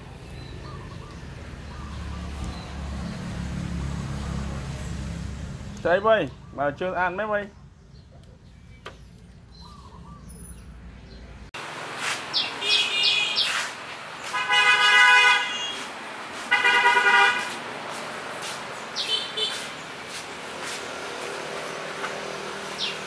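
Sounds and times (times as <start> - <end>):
horn honking: 12.6 - 17.6, 19.0 - 19.7.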